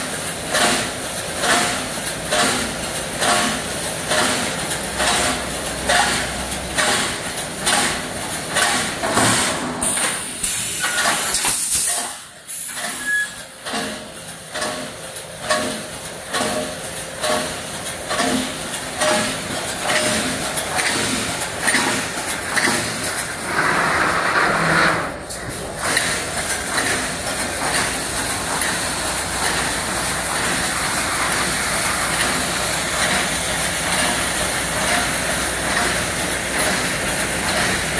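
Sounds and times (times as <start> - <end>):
welding machine clanking: 0.0 - 37.9
burst of hiss: 10.2 - 12.9.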